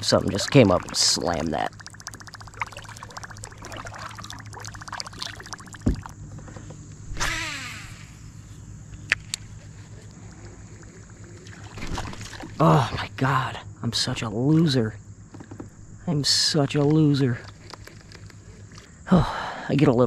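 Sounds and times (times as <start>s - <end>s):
fast fine ticking: 0.0s - 6.1s
fishing line whirring off reel: 7.1s - 12.5s.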